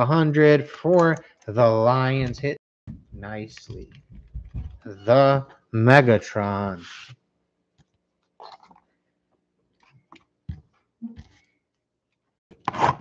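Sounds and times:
low knock: 0:02.2 - 0:04.8.

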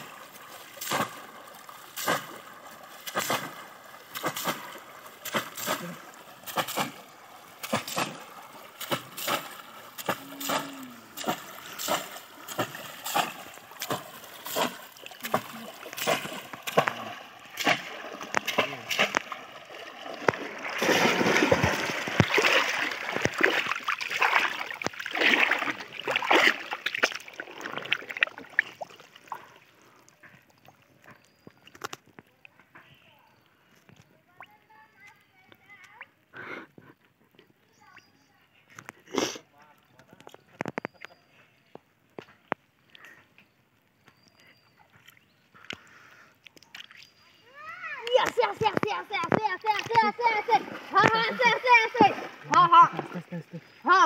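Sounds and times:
fish traps splashing into water: 0:00.0 - 0:29.4, 0:47.9 - 0:53.3
heavy splashing and sloshing: 0:00.0 - 0:29.7, 0:48.3 - 0:54.0.

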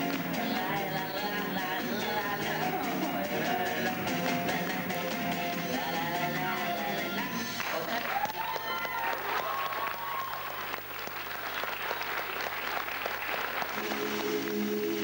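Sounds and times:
music with held notes: 0:00.0 - 0:07.7, 0:13.8 - 0:15.0
audience applauding: 0:04.0 - 0:15.0.

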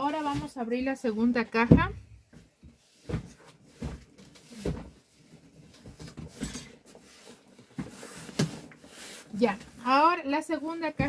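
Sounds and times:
cardboard scraping rustle: 0:02.9 - 0:10.0.

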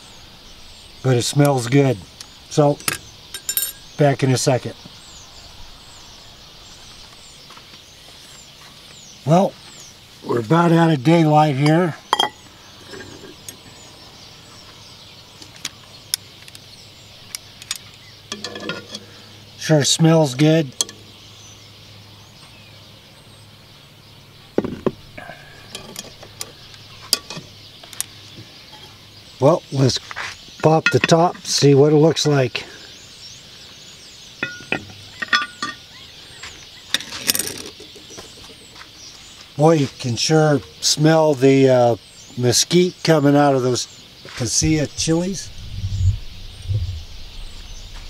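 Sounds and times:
metal lid lifter clinking: 0:02.8 - 0:03.9, 0:34.4 - 0:35.8.

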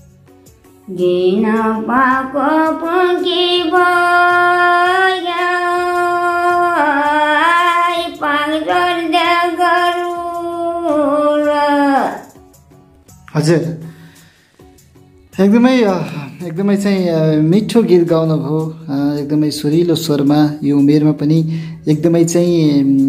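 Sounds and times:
elderly woman singing unaccompanied: 0:00.9 - 0:12.2.

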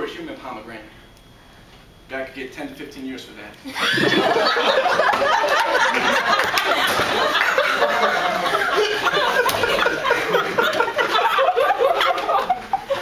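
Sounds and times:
group of people laughing: 0:03.7 - 0:13.0.

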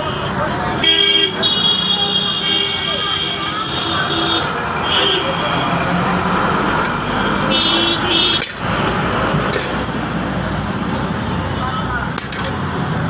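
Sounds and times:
road traffic: 0:00.0 - 0:13.0
vehicle horn toots: 0:07.4 - 0:08.5.

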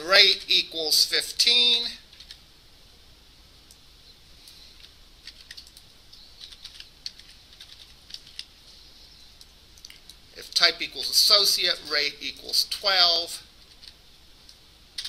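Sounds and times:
computer keyboard typing: 0:02.1 - 0:02.4, 0:05.2 - 0:08.5.

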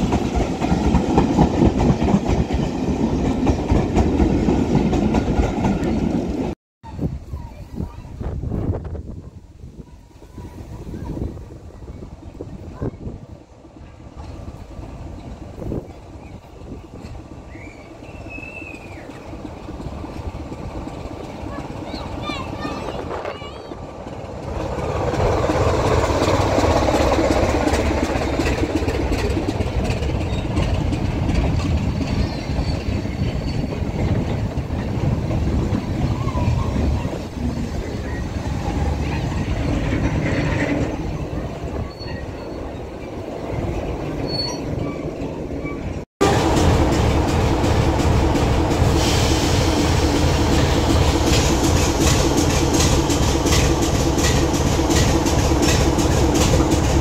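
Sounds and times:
diesel locomotive engine running: 0:12.9 - 0:44.2, 0:44.8 - 0:57.0.

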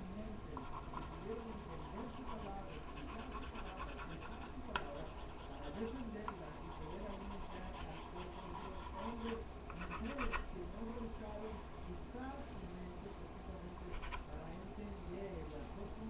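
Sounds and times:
pencil shading on paper: 0:00.6 - 0:10.4.

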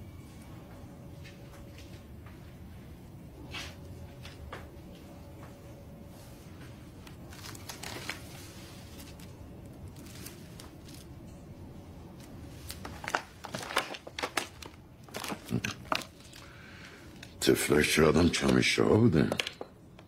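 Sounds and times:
low room hum: 0:00.0 - 0:20.0
paper banknotes rustling: 0:07.1 - 0:11.1, 0:12.2 - 0:18.7.

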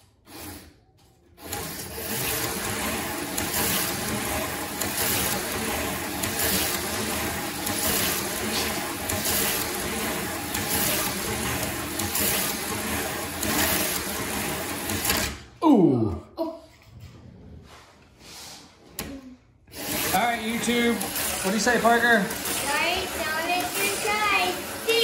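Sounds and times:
slot cars rattling in track: 0:01.4 - 0:15.4, 0:19.7 - 0:25.0
small electric motors whirring: 0:19.7 - 0:25.0.

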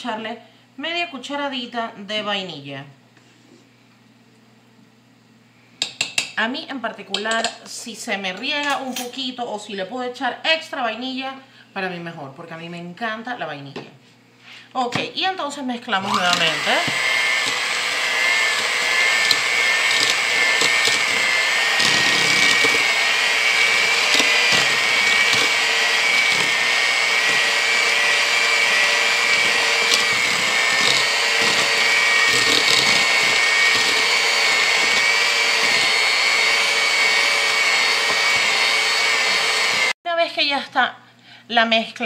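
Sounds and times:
electric hand mixer whine: 0:15.9 - 0:40.0.

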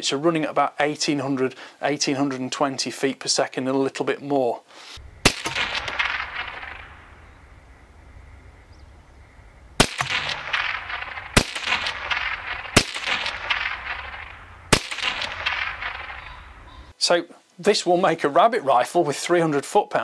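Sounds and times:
rifle shots with ringing echo: 0:05.0 - 0:08.7, 0:09.5 - 0:16.9.

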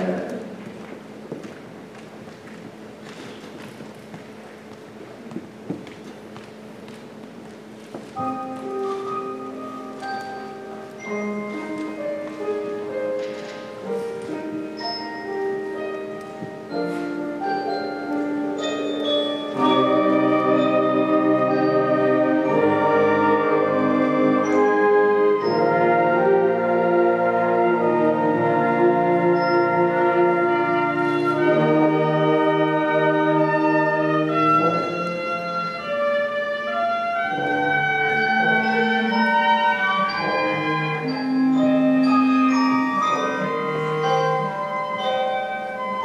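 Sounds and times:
soft held orchestral tones: 0:00.0 - 0:46.0
mallet percussion notes: 0:08.2 - 0:46.0
sustained brass chords: 0:16.6 - 0:46.0.

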